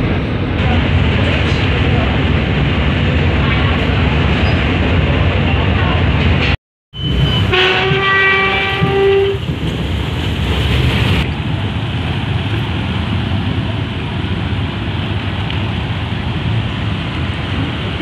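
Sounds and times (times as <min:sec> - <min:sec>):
horn blast: 0:07.2 - 0:09.4.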